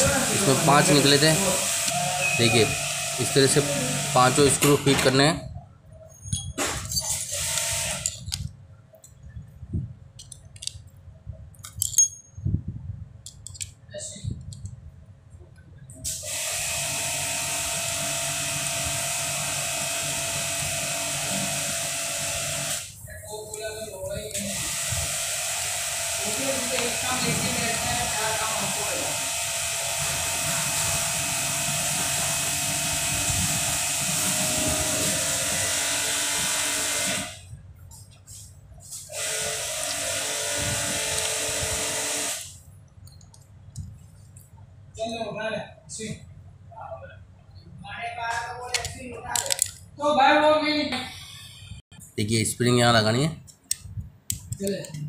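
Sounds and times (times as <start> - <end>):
small electric motor hissing: 0.0 - 4.6, 7.1 - 8.3, 16.0 - 23.0, 24.2 - 37.4, 39.0 - 42.6
machine whirring: 0.0 - 5.3, 6.9 - 8.4, 16.1 - 37.4, 39.1 - 42.6
screwdriver clicks: 7.5 - 8.5, 10.2 - 10.8, 13.2 - 13.8.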